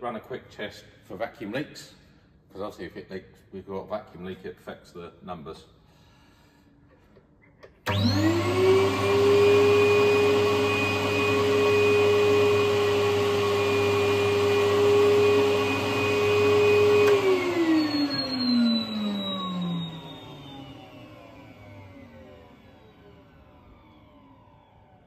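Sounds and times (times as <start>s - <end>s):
vacuum motors whining: 7.8s - 25.0s.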